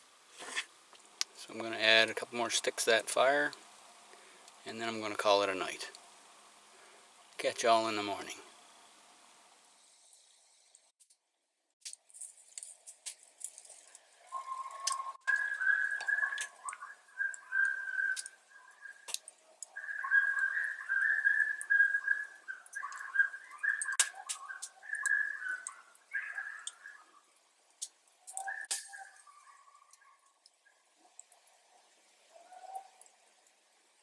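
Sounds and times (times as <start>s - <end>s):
sharp clicks: 17.6s - 19.7s, 23.8s - 25.2s.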